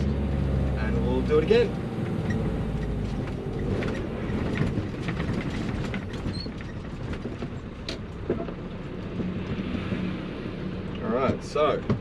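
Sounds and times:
truck engine rumble from cab: 0:00.0 - 0:12.0
rattles and clicks: 0:02.1 - 0:10.0.

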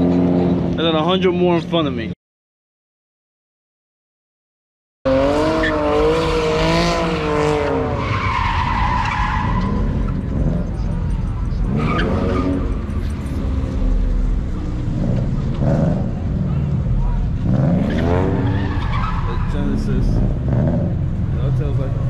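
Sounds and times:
car engine revving: 0:05.1 - 0:22.0
car tyres squealing: 0:05.1 - 0:22.0.

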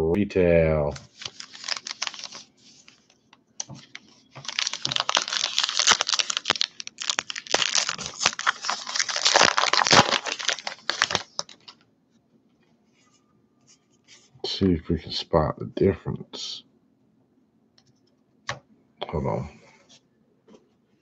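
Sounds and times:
foil wrapper crinkling and tearing: 0:00.9 - 0:03.0, 0:03.6 - 0:11.8.

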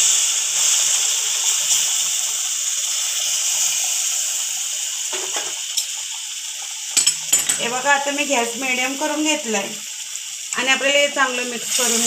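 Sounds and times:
milk hissing and sizzling in pan: 0:00.0 - 0:12.0.

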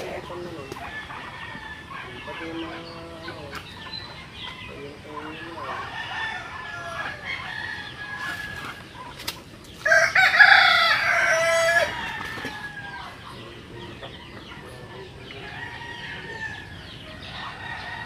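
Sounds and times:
bird calls: 0:00.0 - 0:18.0
chickens clucking: 0:00.0 - 0:18.0
rooster crowing: 0:05.4 - 0:08.8, 0:09.8 - 0:13.3, 0:15.3 - 0:18.0.

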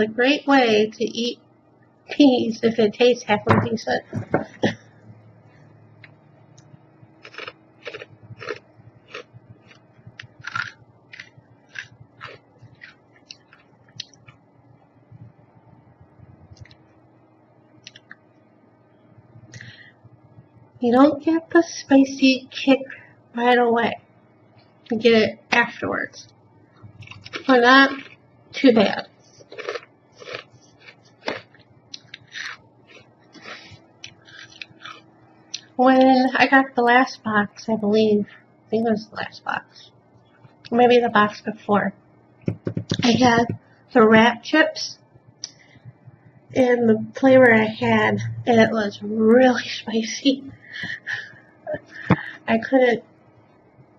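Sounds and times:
person chewing crunchy snack: 0:07.2 - 0:14.4, 0:27.0 - 0:28.3, 0:29.2 - 0:35.7.

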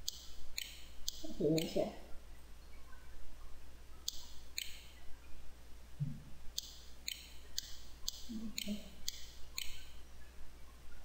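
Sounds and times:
computer mouse clicking: 0:00.0 - 0:01.8, 0:04.1 - 0:04.9, 0:06.6 - 0:10.0.

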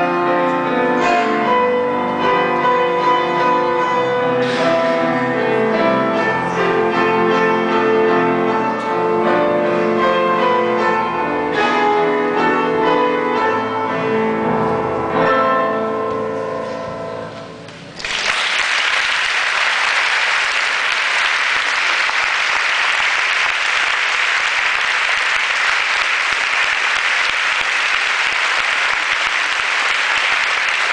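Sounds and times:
audience applause: 0:18.0 - 0:30.9.

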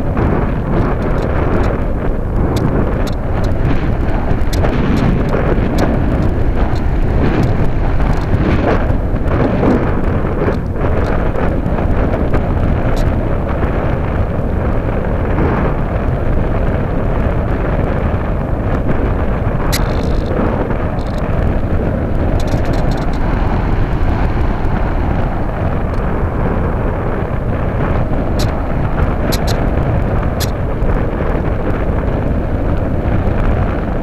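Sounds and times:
airflow rushing over microphone: 0:00.0 - 0:34.0
faint ticks: 0:02.5 - 0:08.4, 0:19.7 - 0:21.3, 0:22.3 - 0:23.2, 0:28.4 - 0:28.6, 0:29.3 - 0:29.6.

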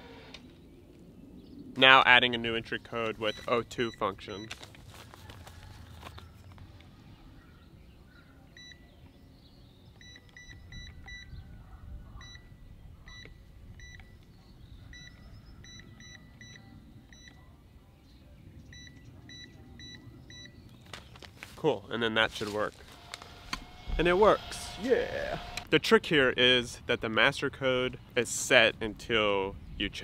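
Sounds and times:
keypad beeps: 0:03.3 - 0:04.5, 0:08.6 - 0:09.1, 0:09.9 - 0:11.3, 0:12.2 - 0:14.3, 0:14.9 - 0:17.4, 0:18.7 - 0:20.6.

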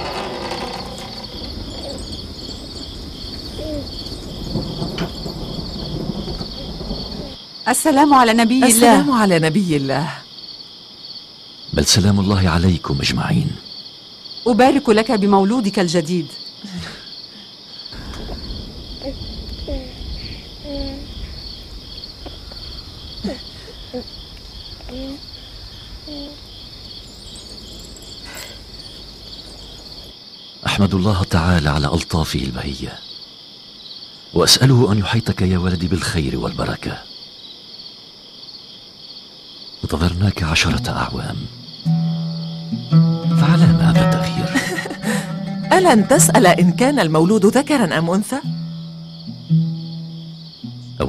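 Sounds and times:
crickets chirping: 0:00.0 - 0:51.0
faint voice-like sounds: 0:03.6 - 0:04.0, 0:19.0 - 0:21.2, 0:24.8 - 0:25.3, 0:26.0 - 0:26.4
low background rumble: 0:18.0 - 0:30.1.

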